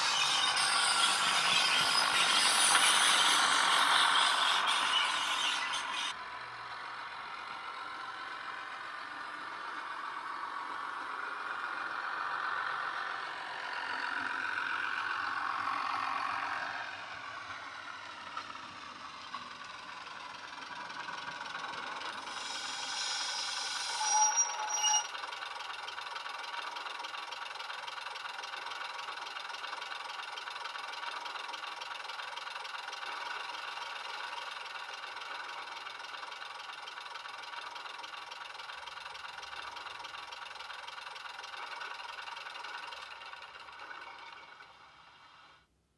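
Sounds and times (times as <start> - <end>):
diesel engine through small speaker: 0.0 - 45.7
burst of hiss: 22.2 - 24.6
short tones: 22.2 - 25.2.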